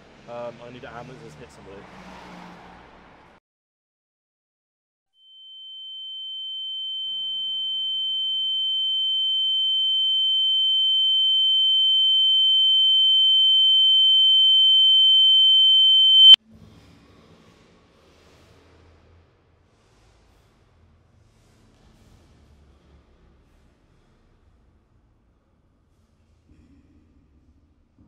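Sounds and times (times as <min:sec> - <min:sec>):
high-pitched ringing tone: 0:05.2 - 0:16.4.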